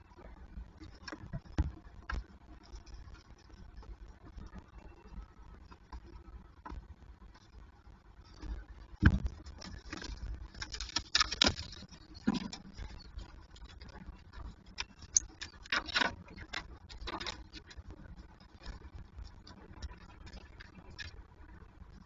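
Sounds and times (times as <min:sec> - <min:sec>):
talons scratching and tapping: 0:09.0 - 0:17.9.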